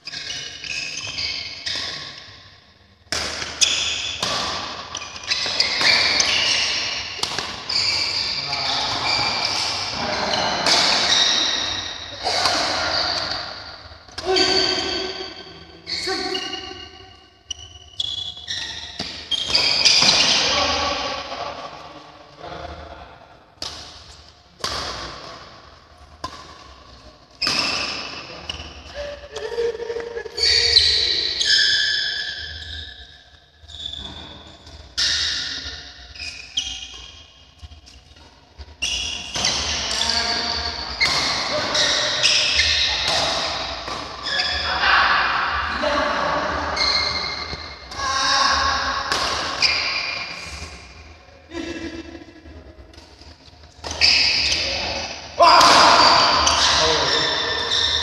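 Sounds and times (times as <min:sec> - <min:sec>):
shoe squeaks on court floor: 0:00.0 - 0:02.5, 0:03.4 - 0:21.0, 0:27.4 - 0:28.8, 0:30.4 - 0:38.0, 0:38.7 - 0:44.7, 0:46.7 - 0:48.0, 0:49.2 - 0:50.9, 0:53.6 - 0:58.0
racket striking shuttlecock: 0:05.4 - 0:07.6.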